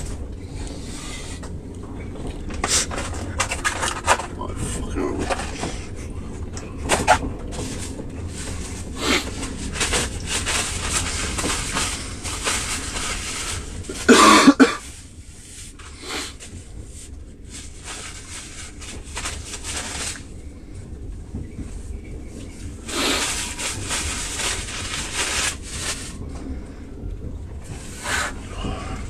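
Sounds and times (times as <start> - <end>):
train carriage rumble: 0.0 - 29.0
man coughing: 14.0 - 14.8.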